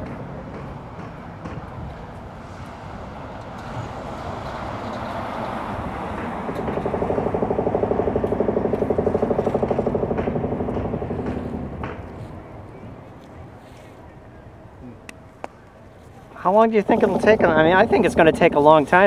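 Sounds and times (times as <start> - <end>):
distant hydraulic hammer pounding concrete: 0.0 - 13.8, 16.4 - 19.0
low steady rumble: 6.3 - 14.5, 16.7 - 19.0.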